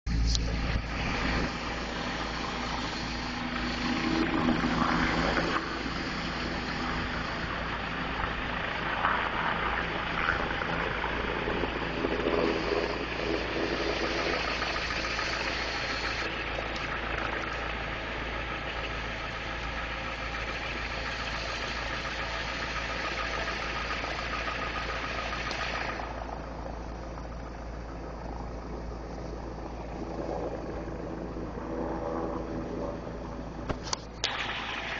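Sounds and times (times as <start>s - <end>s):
car engine running: 0.1s - 34.9s
deep hum: 0.1s - 34.9s
steady rushing noise: 0.1s - 34.9s.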